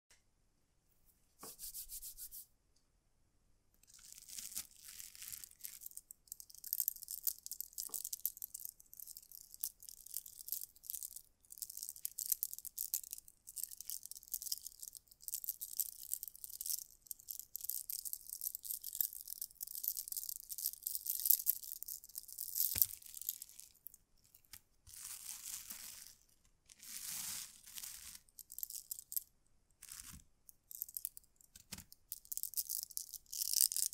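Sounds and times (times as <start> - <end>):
bracelets rattling and clicking: 5.6 - 24.6, 28.2 - 29.3, 30.5 - 33.9.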